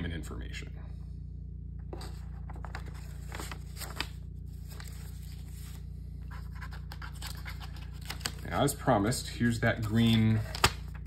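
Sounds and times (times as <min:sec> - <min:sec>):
steady low hum: 0:00.0 - 0:11.0
paper and cardboard rustling: 0:01.9 - 0:08.7, 0:09.8 - 0:11.0.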